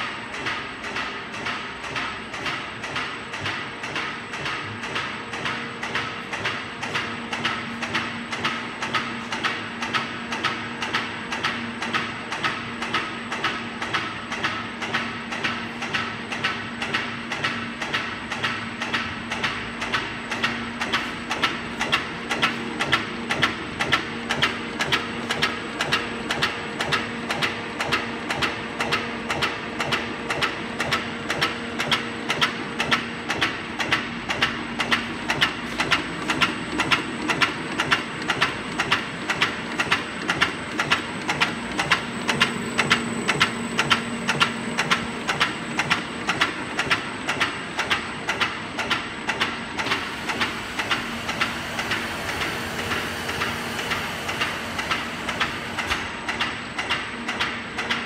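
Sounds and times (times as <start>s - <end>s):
stamping press clacking: 0.3s - 58.0s
motor hum: 21.3s - 57.8s.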